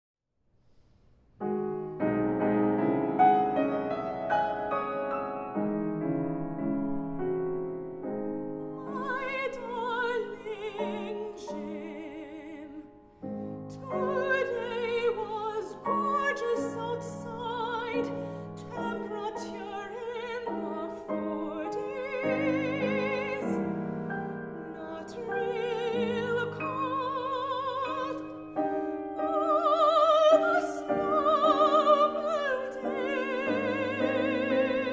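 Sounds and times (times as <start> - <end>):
grand piano playing: 1.4 - 34.9
operatic soprano singing: 8.6 - 13.0, 13.7 - 34.9.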